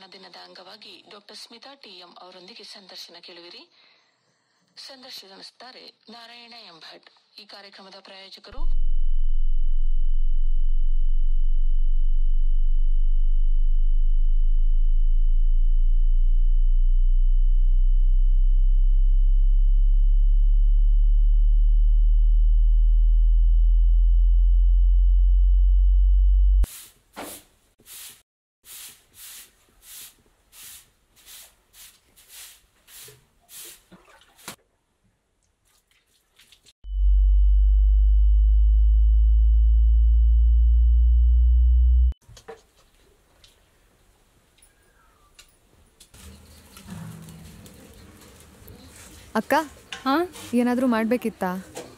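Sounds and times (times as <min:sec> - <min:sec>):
low electronic hum: 0:08.6 - 0:26.7, 0:36.8 - 0:42.2.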